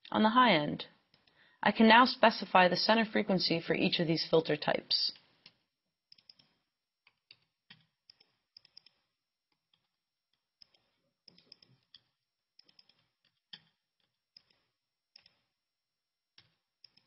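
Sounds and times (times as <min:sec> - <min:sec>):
laptop keys clicking: 0:05.4 - 0:09.9, 0:10.6 - 0:15.4, 0:16.4 - 0:17.0.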